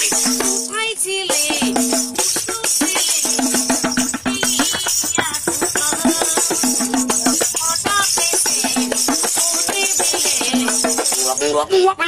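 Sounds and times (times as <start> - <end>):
fingers tapping metal plate drum: 0.0 - 11.4.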